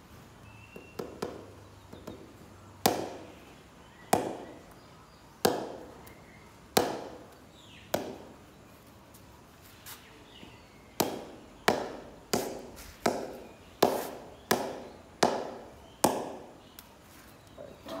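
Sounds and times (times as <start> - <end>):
ball knocking on cricket bat: 0.8 - 2.2, 2.8 - 3.3, 4.1 - 4.5, 5.4 - 5.9, 6.7 - 7.3, 7.9 - 8.3, 11.0 - 16.5.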